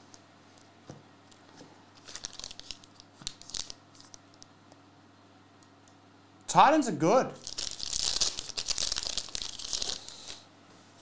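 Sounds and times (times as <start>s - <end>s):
foil wrapper crinkling and tearing: 2.0s - 4.2s, 7.4s - 10.4s.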